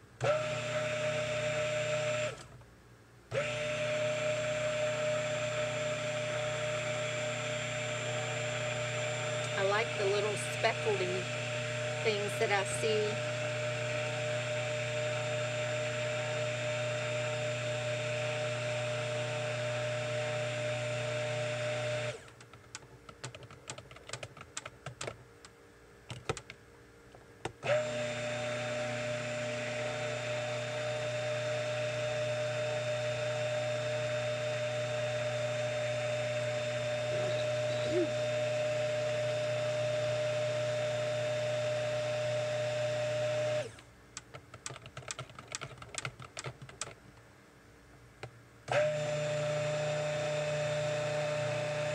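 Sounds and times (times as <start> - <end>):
stick blender running: 0.2 - 2.5, 3.3 - 22.3, 27.6 - 43.8, 48.7 - 51.9.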